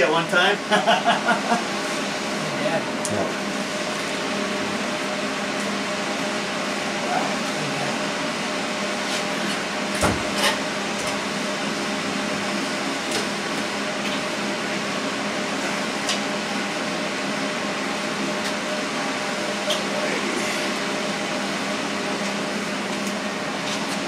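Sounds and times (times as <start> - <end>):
mechanical fan hum: 0.0 - 24.0.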